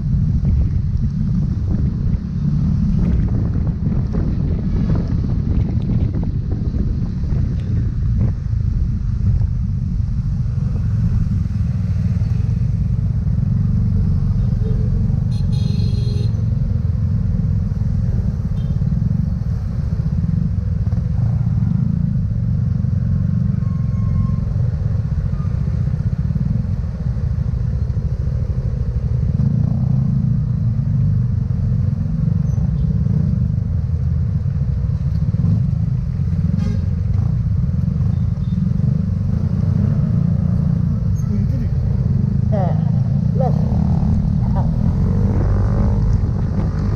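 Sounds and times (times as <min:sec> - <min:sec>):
motor scooter rumble: 0:24.6 - 0:46.9.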